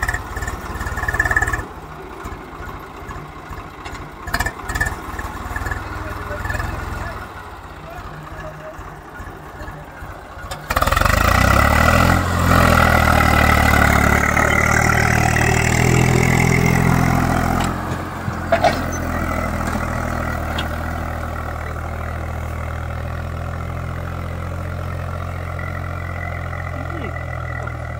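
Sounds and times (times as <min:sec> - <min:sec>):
tractor diesel engine under load: 0:00.0 - 0:27.9.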